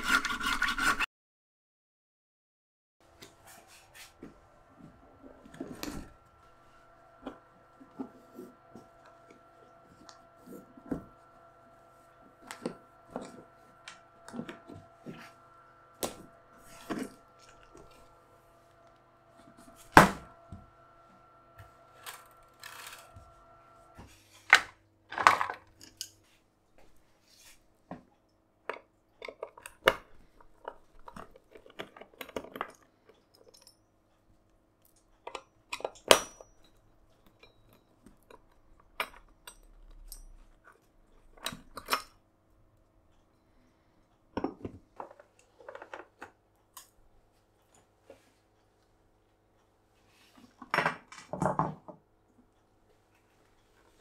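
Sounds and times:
faint steady ringing tone: 4.6s - 24.0s, 36.1s - 38.4s.

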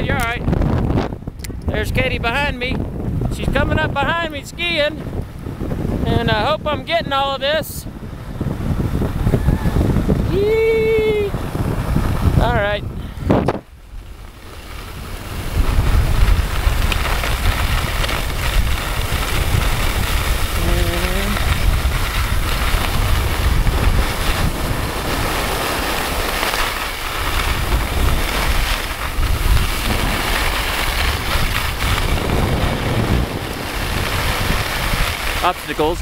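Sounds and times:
wind buffeting microphone: 0.0s - 36.0s
skis sliding on snow: 9.8s - 12.7s, 13.9s - 36.0s.

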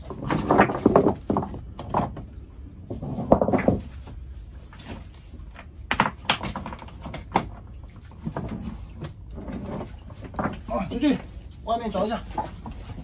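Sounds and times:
sharp knocks and clatters: 0.0s - 2.3s, 3.0s - 4.0s, 5.6s - 10.7s.

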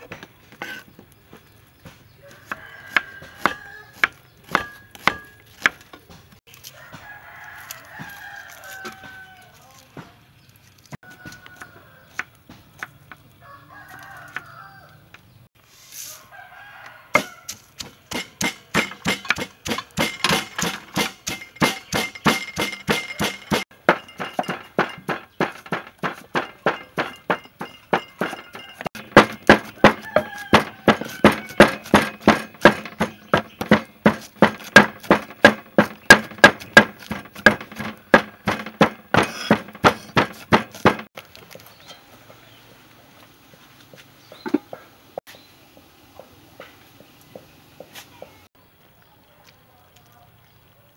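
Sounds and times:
cleaver chopping on wooden board: 1.9s - 6.2s, 17.2s - 41.1s.

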